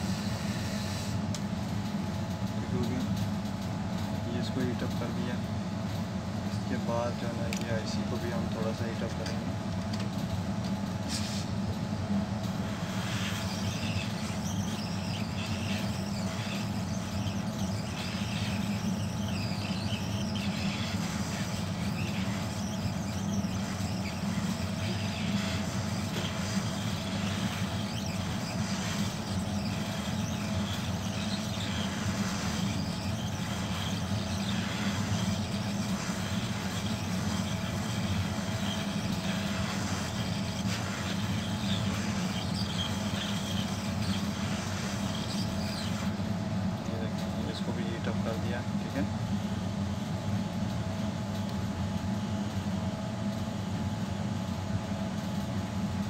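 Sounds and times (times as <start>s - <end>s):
hot air station blowing: 6.4s - 49.2s.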